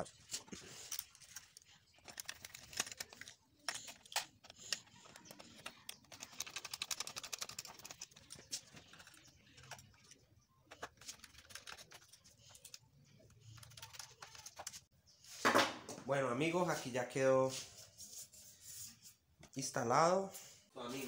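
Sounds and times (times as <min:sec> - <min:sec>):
rapid ticking: 0:04.8 - 0:09.8.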